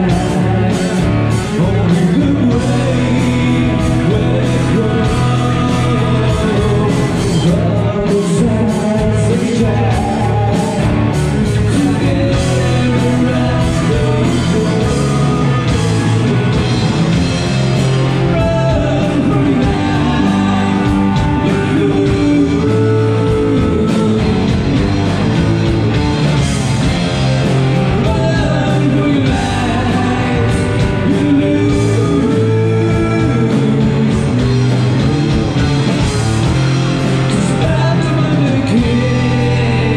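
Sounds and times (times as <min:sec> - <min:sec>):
lead vocalist singing: 0:00.0 - 0:25.3, 0:26.8 - 0:34.8, 0:36.0 - 0:39.9
live rock band playing: 0:00.0 - 0:39.9.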